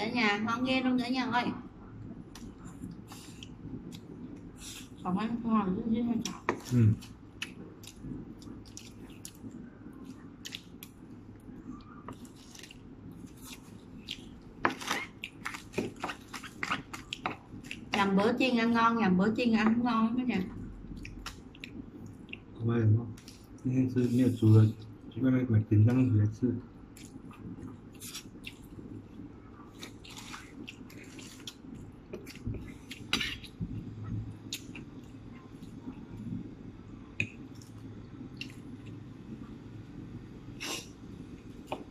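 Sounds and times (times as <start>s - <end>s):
faint chewing: 2.0s - 5.0s, 6.2s - 18.1s, 20.3s - 25.2s, 26.9s - 39.6s.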